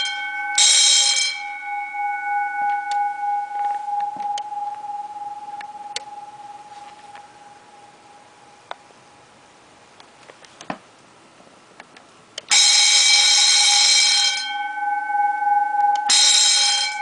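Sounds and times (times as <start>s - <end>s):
electric alarm bell ringing: 0.0s - 8.0s, 12.5s - 17.0s.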